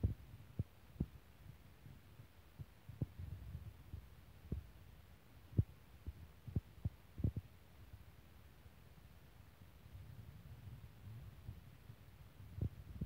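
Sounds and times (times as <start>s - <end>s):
soft low thumps: 0.0s - 4.8s
low steady hum: 0.0s - 13.0s.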